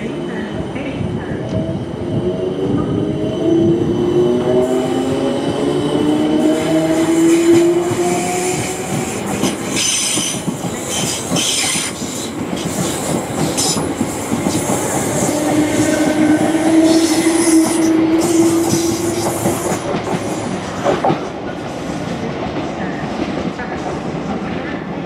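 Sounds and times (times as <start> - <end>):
train wheels squealing: 8.4 - 13.9.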